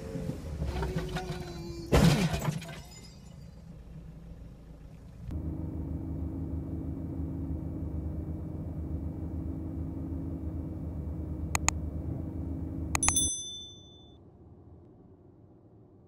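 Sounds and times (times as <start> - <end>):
low hum of car interior: 0.0 - 16.0
mouse clicks: 13.0 - 13.3
sharp click: 13.0 - 13.8
bell-like ding: 13.0 - 14.2.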